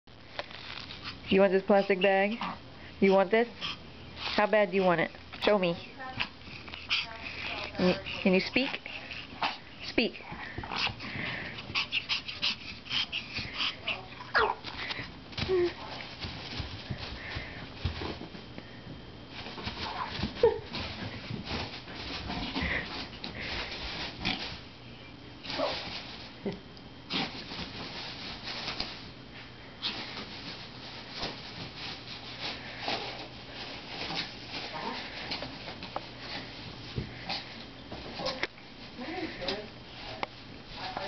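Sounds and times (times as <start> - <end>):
plastic bag crinkling: 0.2 - 1.0
dog whining: 13.9 - 14.7.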